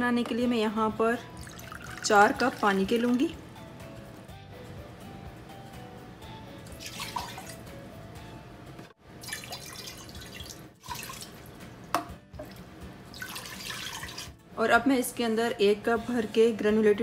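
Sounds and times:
faint background music: 0.0 - 17.0
water splashing into metal pot: 1.4 - 3.2, 6.7 - 7.6, 9.2 - 11.5, 12.4 - 14.3.

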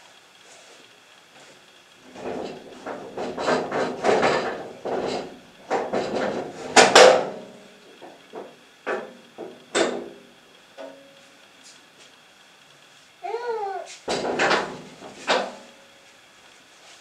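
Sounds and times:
objects knocking and clattering: 2.1 - 7.4, 14.1 - 15.6.

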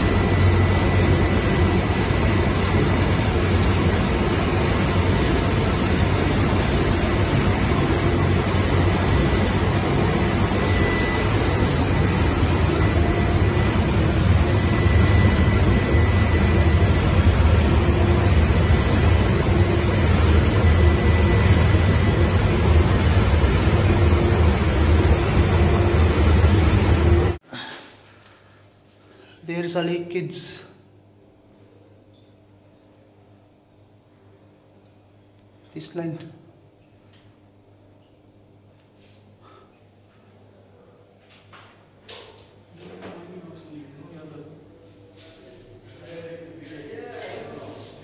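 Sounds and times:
diesel engine running: 0.0 - 27.4.

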